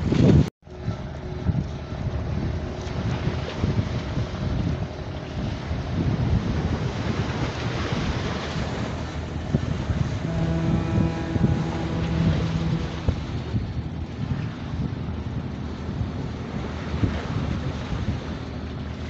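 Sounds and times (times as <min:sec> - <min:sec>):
choppy water washing: 0:00.0 - 0:19.0
wind buffeting the microphone: 0:00.0 - 0:19.0
steady low pitched tone: 0:09.0 - 0:15.5.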